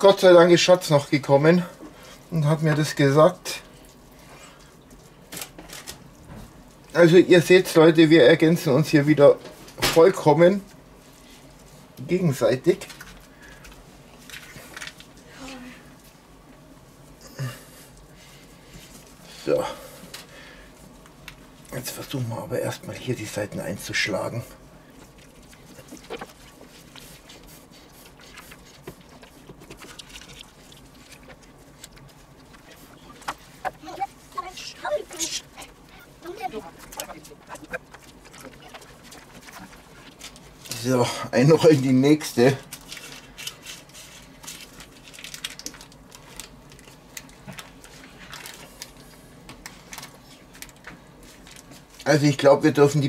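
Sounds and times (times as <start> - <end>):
low steady hum: 0.0 - 53.0
soft squishes of meat: 1.1 - 7.0, 23.3 - 40.8, 42.6 - 52.2
baking paper crinkling: 21.7 - 53.0.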